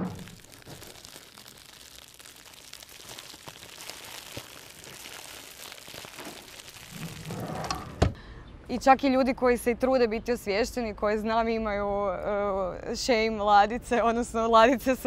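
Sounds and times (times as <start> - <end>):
crackling and rustling: 0.0 - 8.1.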